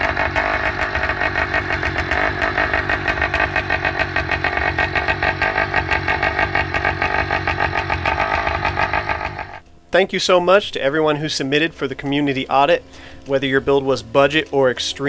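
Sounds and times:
two-stroke bicycle engine running: 0:00.0 - 0:09.6.

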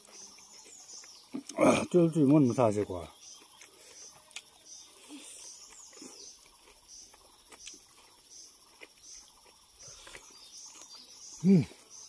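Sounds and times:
faint chirps: 0:00.0 - 0:12.0
chewing and lip-smacking: 0:03.3 - 0:11.0.

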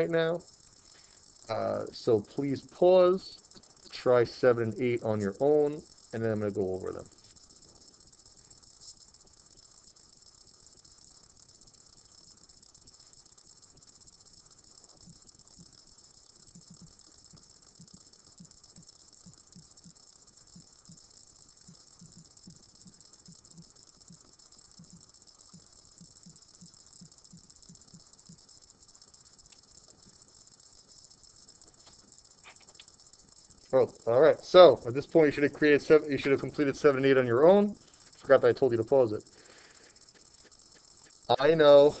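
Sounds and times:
steady high hiss: 0:00.0 - 0:42.0
faint soft low ticks: 0:07.0 - 0:35.2.

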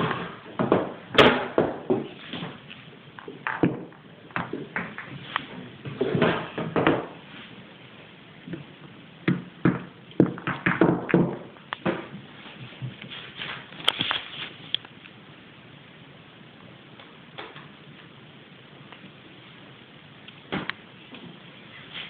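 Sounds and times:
billiard balls clacking: 0:00.0 - 0:07.3, 0:08.5 - 0:13.1
billiard balls rolling: 0:00.0 - 0:07.5, 0:08.4 - 0:13.9.

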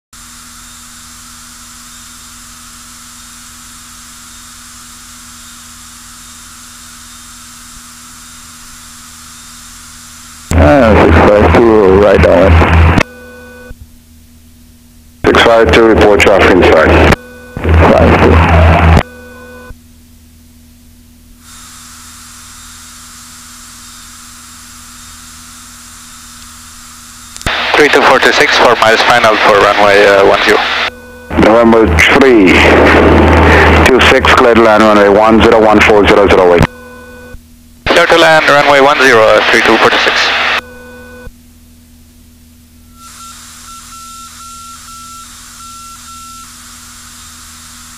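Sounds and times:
faint low engine drone: 0:00.3 - 0:21.7, 0:23.8 - 0:47.6
radio hiss: 0:10.5 - 0:13.0, 0:15.2 - 0:19.0, 0:21.4 - 0:36.8, 0:37.9 - 0:40.6, 0:43.0 - 0:47.9
propeller aircraft cockpit hiss: 0:21.4 - 0:23.3, 0:27.5 - 0:35.3, 0:43.0 - 0:47.6
propeller aircraft hum: 0:29.0 - 0:37.2.

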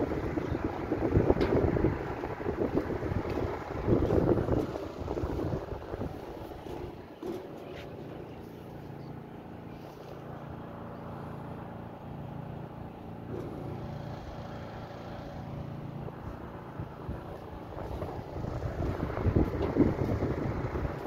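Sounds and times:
wind rumbling on microphone: 0:00.0 - 0:08.7, 0:13.4 - 0:21.0
low machine hum: 0:00.0 - 0:21.0.

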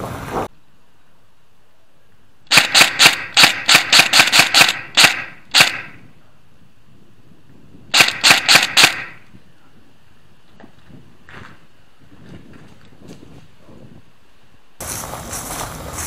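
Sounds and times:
airsoft gun shots: 0:02.5 - 0:06.0, 0:07.9 - 0:09.2.

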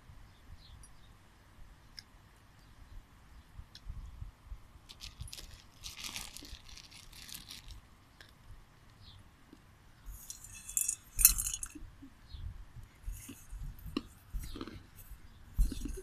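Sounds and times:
bowl scraping and knocking: 0:10.1 - 0:11.8
popcorn kernels rattling in metal bowl: 0:10.2 - 0:11.8.

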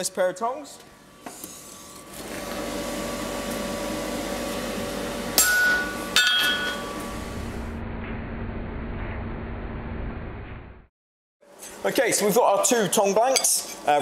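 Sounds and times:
steady mechanical hum: 0:00.0 - 0:10.8, 0:11.4 - 0:14.0.

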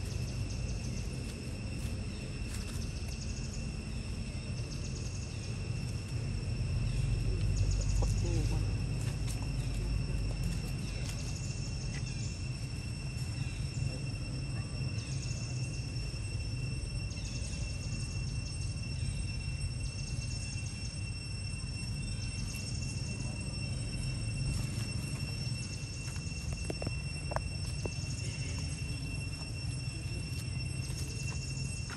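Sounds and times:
insects droning: 0:00.0 - 0:31.9
low rumble: 0:00.0 - 0:31.9
pulsing insect buzz: 0:00.0 - 0:31.9.

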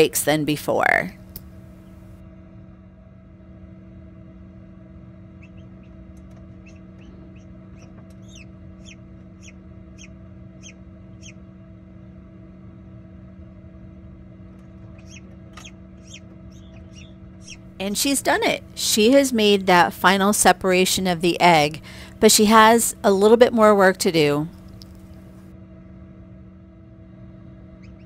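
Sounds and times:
steady low hum: 0:00.0 - 0:28.0
chick peeping inside egg: 0:07.8 - 0:11.4, 0:14.9 - 0:18.8.

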